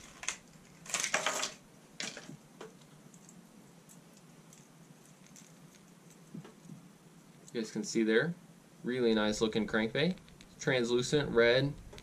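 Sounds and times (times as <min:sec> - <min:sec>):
packaging rustling and crinkling: 0:00.0 - 0:02.4.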